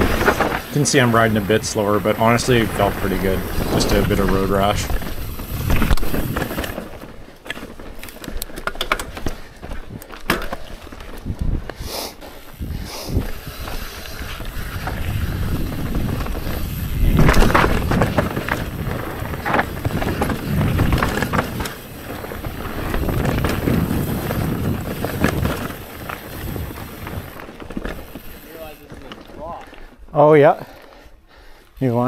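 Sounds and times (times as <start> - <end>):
wind buffeting microphone: 0.0 - 6.6, 11.0 - 28.4
bike clicks and rattles: 0.0 - 32.0
bike tyres crunching over dirt: 0.0 - 32.0.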